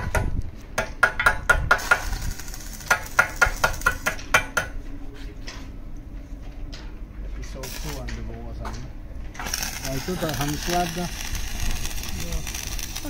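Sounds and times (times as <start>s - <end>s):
welding hiss: 1.7s - 4.2s, 7.6s - 8.2s, 9.3s - 13.0s.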